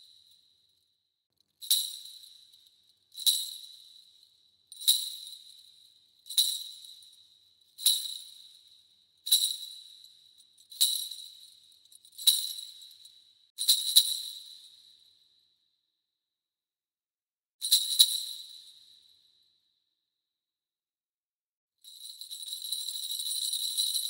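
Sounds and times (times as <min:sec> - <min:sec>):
bell tree jingling: 0:22.0 - 0:24.0.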